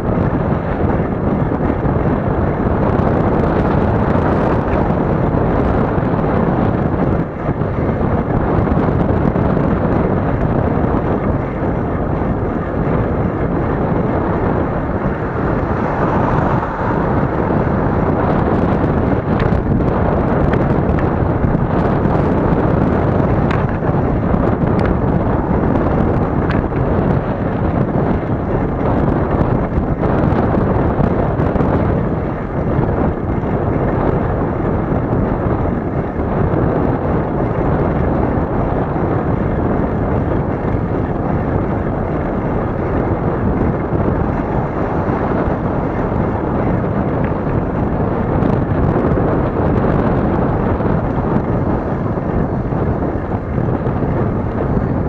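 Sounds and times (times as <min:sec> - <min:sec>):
road rumble: 0:00.0 - 0:55.0
wind buffeting microphone: 0:00.0 - 0:55.0.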